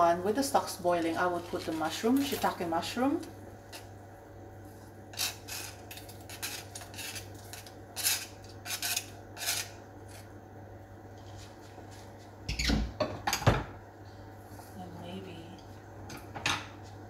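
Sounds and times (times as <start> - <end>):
chopsticks scraping cutting board: 5.1 - 10.3.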